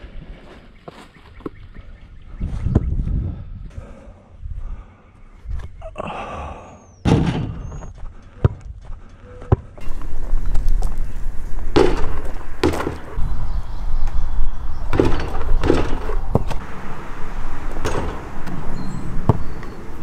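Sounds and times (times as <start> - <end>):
basketball bouncing and thudding: 7.1 - 8.8, 9.5 - 9.7, 11.7 - 13.2, 14.9 - 16.6, 17.7 - 19.9.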